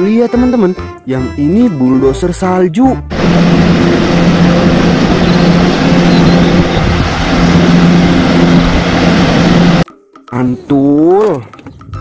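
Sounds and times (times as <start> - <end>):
diesel wheel loader engine running: 3.0 - 9.9.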